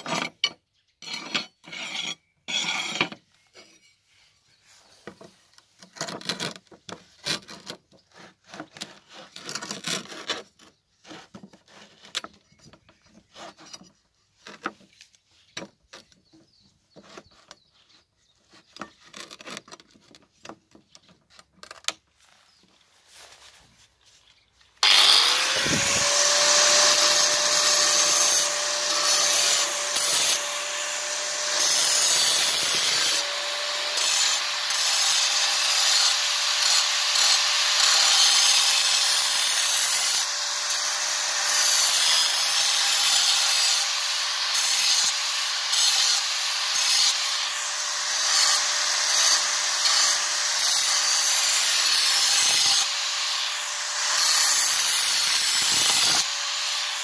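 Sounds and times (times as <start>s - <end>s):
angle grinder cutting tile: 1.0s - 3.2s, 24.8s - 57.0s.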